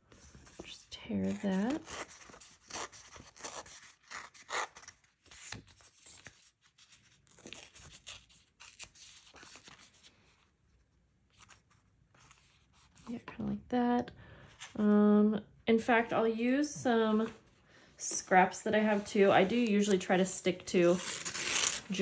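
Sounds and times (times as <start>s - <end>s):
paper rustling: 0.0s - 10.6s, 11.2s - 13.2s
paper being torn by hand: 1.5s - 6.3s, 7.2s - 9.9s, 20.9s - 22.0s.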